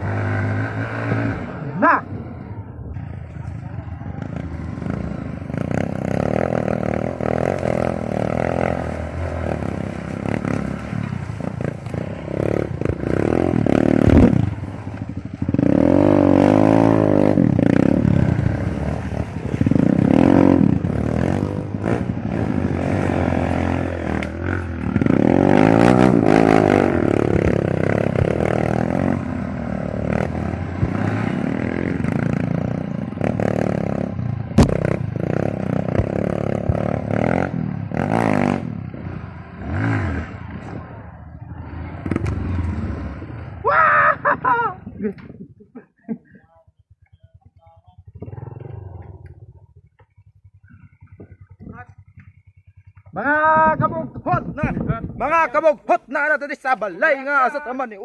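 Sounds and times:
motorcycle engine revving: 0:00.0 - 0:45.4, 0:46.8 - 0:55.2
sharp knock: 0:34.6 - 0:35.0.

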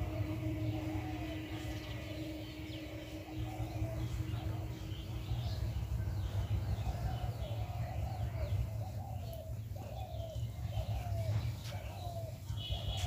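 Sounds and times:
bird calling a low note: 0:00.0 - 0:13.0
small birds chirping: 0:00.0 - 0:13.0
steady low rumble: 0:00.0 - 0:13.0.

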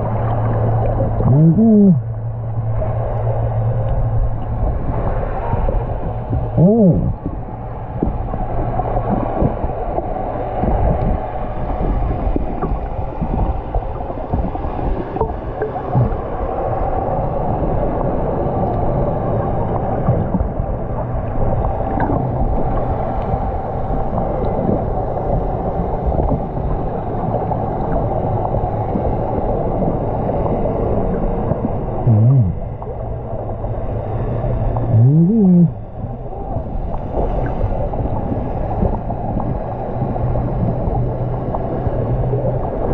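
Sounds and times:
rushing gurgling water underwater: 0:00.0 - 0:42.9
muffled vocal sound: 0:01.2 - 0:02.1, 0:06.4 - 0:07.2, 0:32.0 - 0:32.6, 0:34.8 - 0:35.8.

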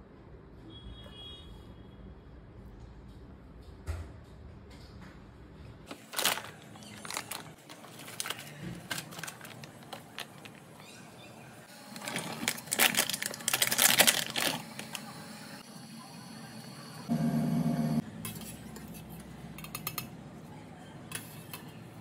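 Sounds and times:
plastic packaging crinkling: 0:05.9 - 0:10.8, 0:11.9 - 0:15.1.

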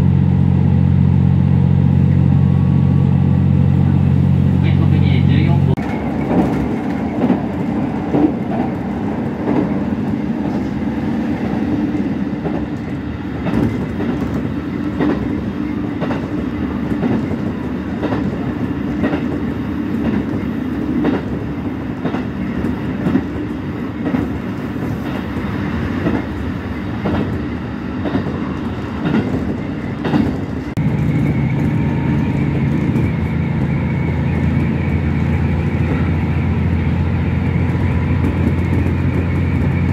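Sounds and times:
train wheels clicking over rail joints: 0:05.8 - 0:10.8, 0:11.4 - 0:36.8, 0:37.4 - 0:39.9
low engine hum: 0:30.8 - 0:39.9.

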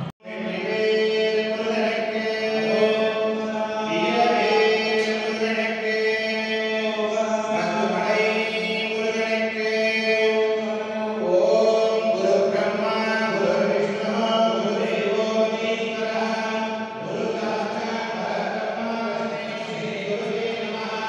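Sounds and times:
voices chanting: 0:00.0 - 0:08.8.

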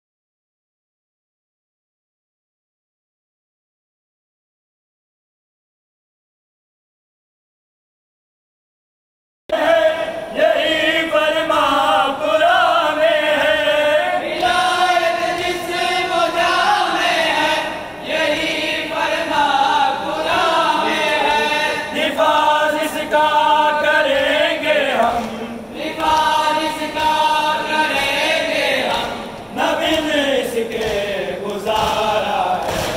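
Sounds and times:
group of voices chanting a lament: 0:09.5 - 0:32.9.

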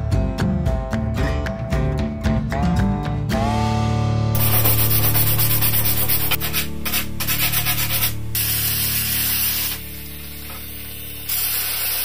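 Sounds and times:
orbital sander on plastic: 0:04.4 - 0:12.0.

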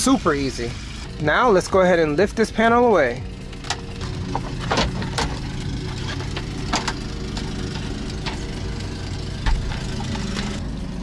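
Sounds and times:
engine idling: 0:00.0 - 0:11.0.

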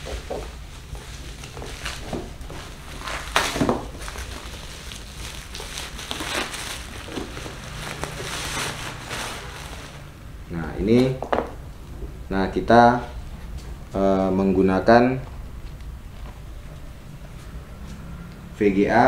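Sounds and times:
plastic and bubble wrap crinkling: 0:00.0 - 0:10.2.

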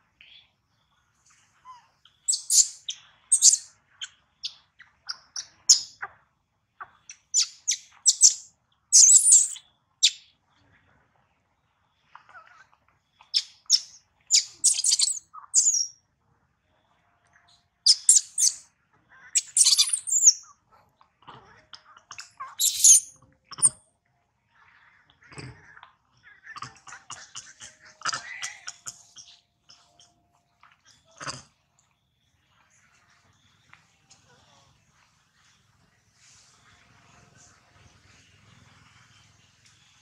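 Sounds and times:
baby monkey crying: 0:01.7 - 0:03.6, 0:07.4 - 0:09.6, 0:13.3 - 0:15.9, 0:17.9 - 0:18.6, 0:19.4 - 0:20.4, 0:22.5 - 0:23.8.

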